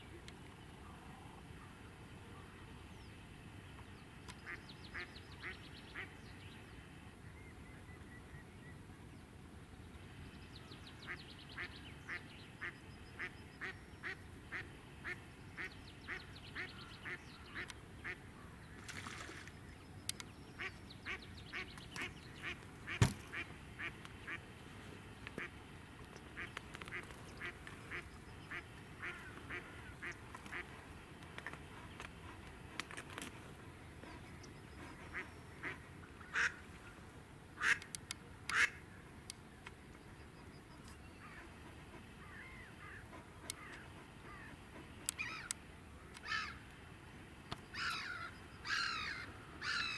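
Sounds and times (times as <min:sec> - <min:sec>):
duck quacking: 0:38.5 - 0:38.8.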